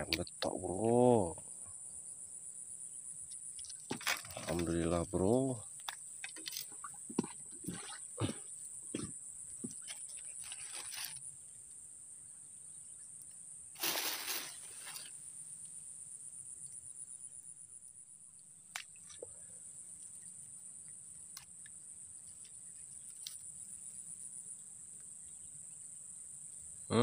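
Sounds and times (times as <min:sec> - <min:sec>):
noisy rustling: 0:13.8 - 0:15.2.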